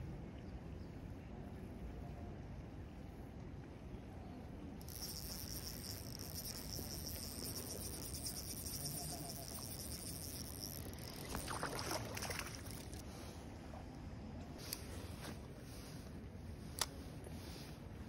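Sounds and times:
fishing reel ticking whirr: 0:04.8 - 0:13.0
fish splashing: 0:05.0 - 0:13.0.

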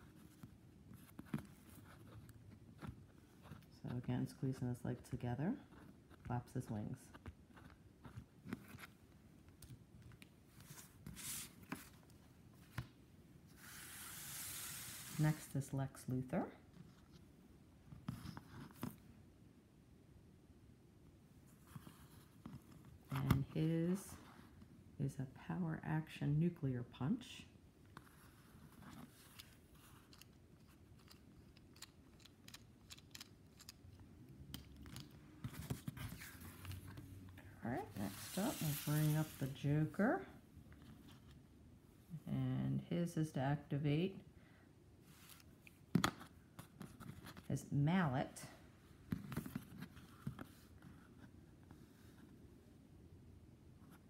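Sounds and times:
cardboard rustle: 0:37.9 - 0:39.6.

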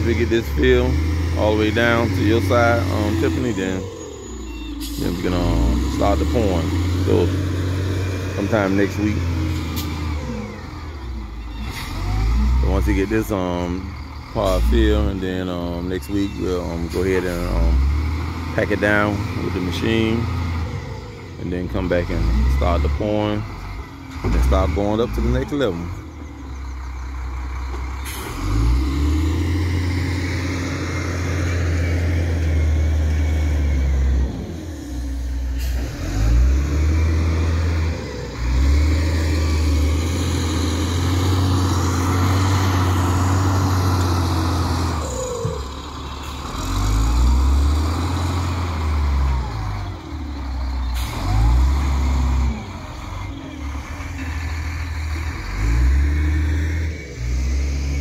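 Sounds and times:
diesel engine revving under load: 0:00.0 - 0:58.0.

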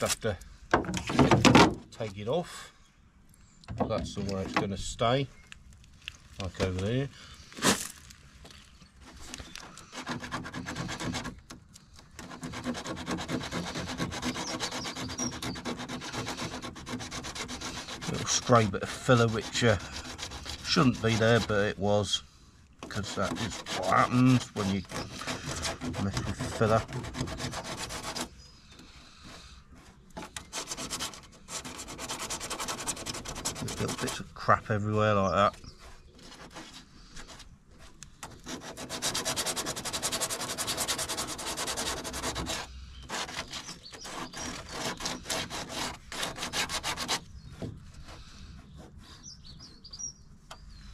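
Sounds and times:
hand sanding with sandpaper: 0:09.0 - 0:11.4, 0:12.2 - 0:22.2, 0:22.9 - 0:28.4, 0:29.2 - 0:49.8.

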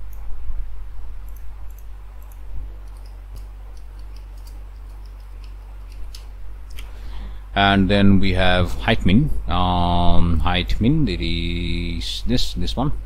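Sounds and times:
steady low hum: 0:00.0 - 0:13.0
keyboard and mouse clicks: 0:01.3 - 0:06.9.

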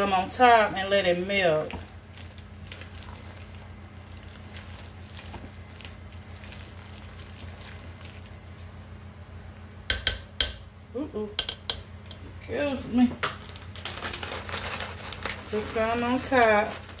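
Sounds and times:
spatula scraping and squishing: 0:00.0 - 0:08.8
steady low hum: 0:00.0 - 0:17.0
spatula knocking ceramic crock: 0:09.9 - 0:10.7, 0:11.4 - 0:11.9.

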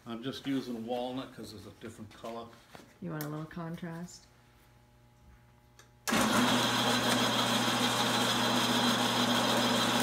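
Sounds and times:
bandsaw running: 0:06.1 - 0:10.0.

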